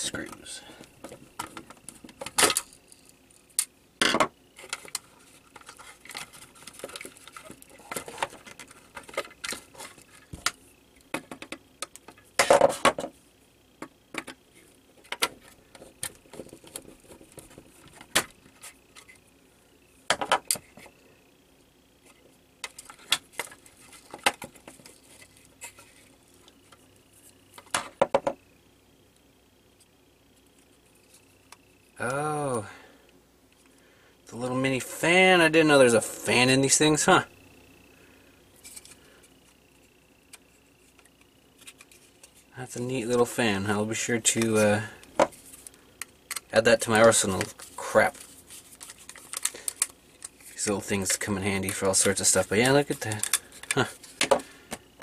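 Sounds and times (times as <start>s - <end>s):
small parts handled: 0.2s - 13.1s, 22.0s - 28.3s, 38.6s - 39.6s, 44.3s - 55.0s.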